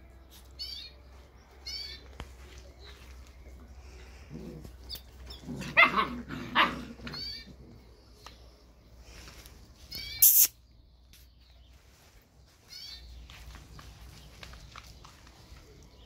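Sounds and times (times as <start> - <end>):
puppies barking: 4.6 - 7.6.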